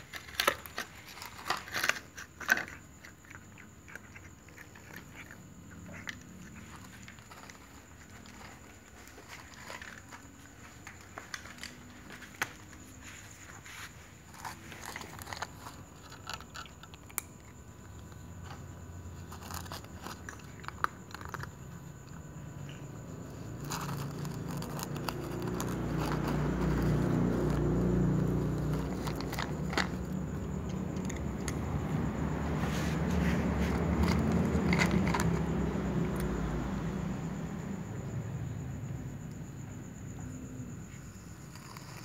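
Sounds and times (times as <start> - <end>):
cat crunching dry kibble: 0.0 - 12.8, 14.2 - 17.8, 19.1 - 22.2, 23.3 - 31.9, 33.4 - 36.3, 41.5 - 42.0.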